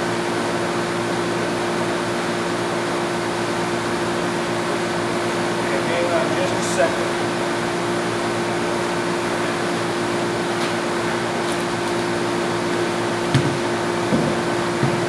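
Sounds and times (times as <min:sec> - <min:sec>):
machinery hum: 0:00.0 - 0:15.0
light knocks of handled compressor: 0:13.3 - 0:15.0.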